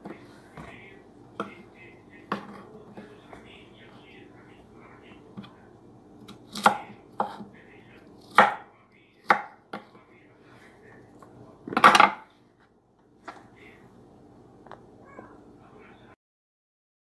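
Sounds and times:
knife chopping on wooden board: 6.3 - 7.5, 8.2 - 10.0, 11.7 - 12.3.

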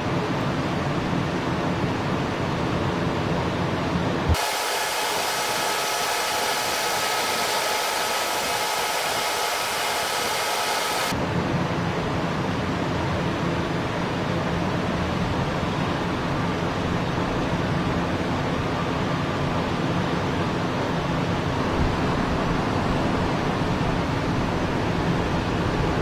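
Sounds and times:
jet engines low rumble: 0.0 - 26.0
hissing whine with high tones: 4.3 - 11.1.

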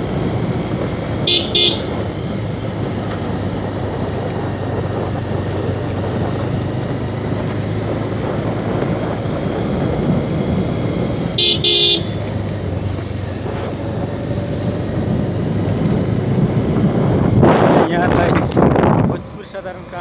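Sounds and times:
wind on microphone: 0.0 - 19.4
motorcycle engine rumble: 0.0 - 20.0
horn beeps: 1.2 - 2.0, 11.4 - 12.2.

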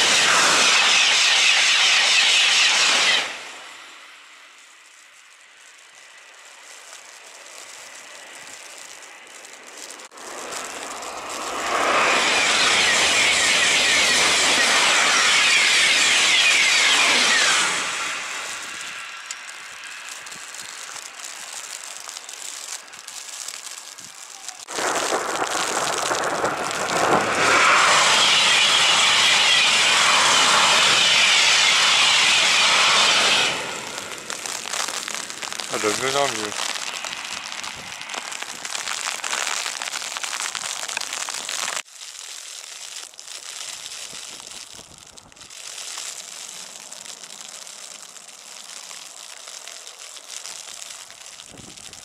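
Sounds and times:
high-speed train passing: 0.0 - 4.6, 7.2 - 21.9, 24.4 - 38.7.

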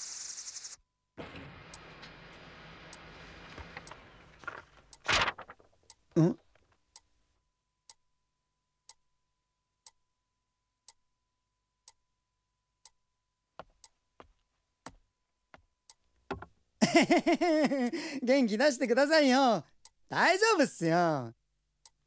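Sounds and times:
person speaking: 6.1 - 6.4, 17.6 - 21.4
soft knocks: 16.3 - 16.5.

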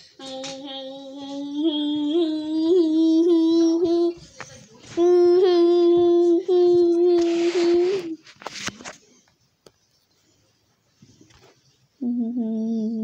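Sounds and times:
child humming: 0.2 - 4.2, 5.0 - 8.2, 12.0 - 13.0.

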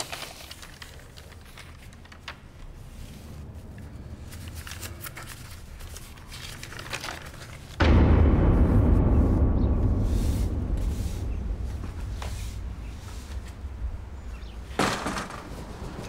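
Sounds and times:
paper rustling: 0.0 - 7.8
loud low outdoor rumble: 0.5 - 16.0.

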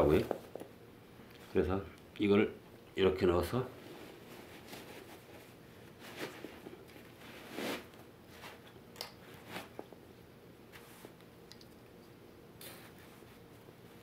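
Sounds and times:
nylon pouch rustling and scraping: 3.9 - 8.6.

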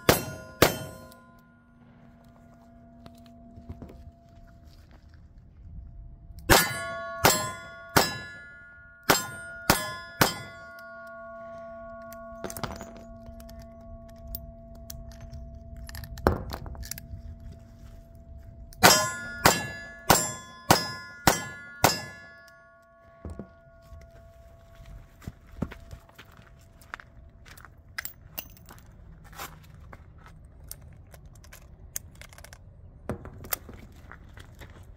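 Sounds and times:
steel target ringing: 0.0 - 4.6, 6.5 - 17.6, 18.8 - 24.8.

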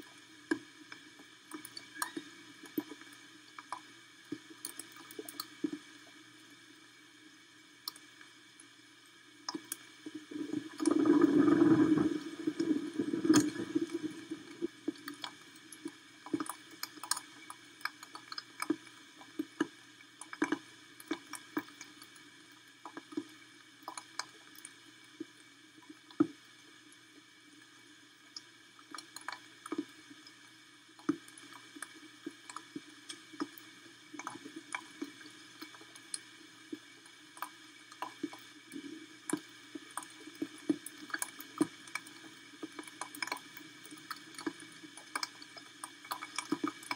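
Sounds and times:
rain dripping on camera: 0.0 - 6.1, 9.5 - 26.4, 28.3 - 46.9.

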